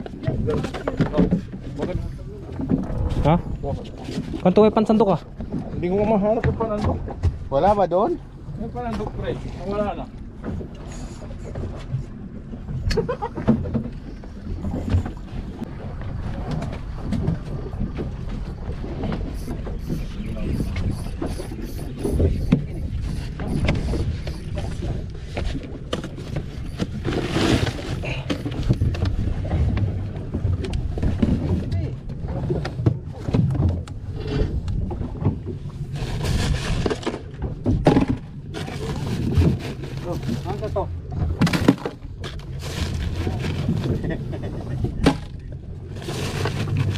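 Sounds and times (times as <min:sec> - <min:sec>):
wind on microphone: 0:00.0 - 0:05.9, 0:13.9 - 0:37.0
boat engine low rumble: 0:00.0 - 0:46.9.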